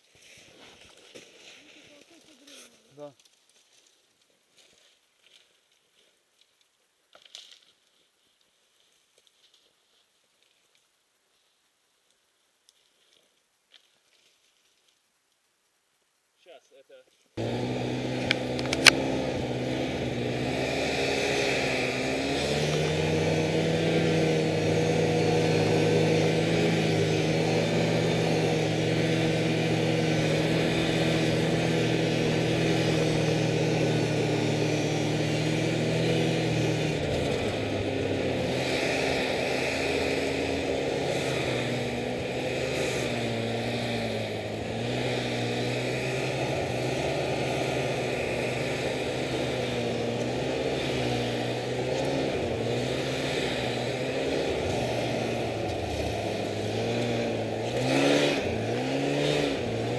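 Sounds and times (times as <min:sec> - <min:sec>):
snowmobile engine running: 0:17.4 - 0:59.9.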